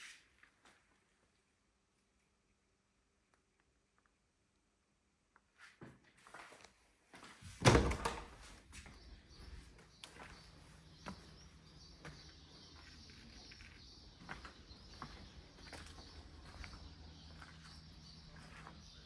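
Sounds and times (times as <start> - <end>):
faint outdoor background: 0.0 - 19.0
glass door opening: 7.6 - 8.6
birds chirping: 7.7 - 19.0.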